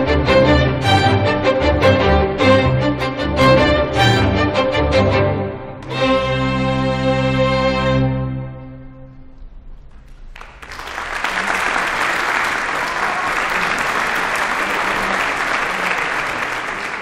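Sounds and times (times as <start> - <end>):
string orchestra chord: 0.0 - 9.0
audience applause: 9.9 - 17.0.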